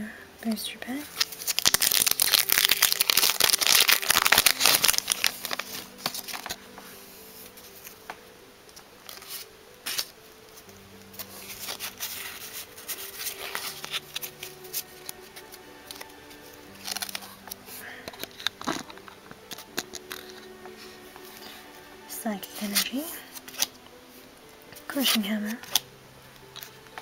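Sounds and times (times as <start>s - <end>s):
quiet background music: 0.0s - 27.0s
rustling and handling: 0.5s - 27.0s
foil pack tearing and crinkling: 1.1s - 6.6s, 11.4s - 16.1s, 16.7s - 17.3s.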